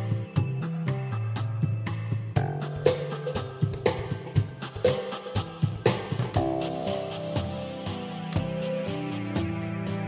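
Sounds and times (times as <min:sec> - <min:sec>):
instrumental background music: 0:00.0 - 0:10.0
drum beat: 0:02.4 - 0:07.6.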